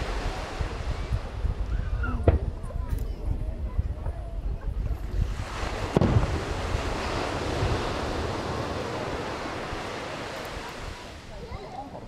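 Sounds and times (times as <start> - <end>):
firework boom: 5.6 - 7.8.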